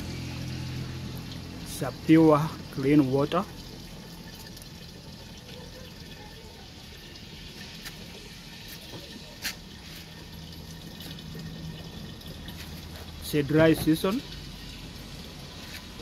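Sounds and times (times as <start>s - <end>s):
water running into plastic container: 0.0s - 16.0s.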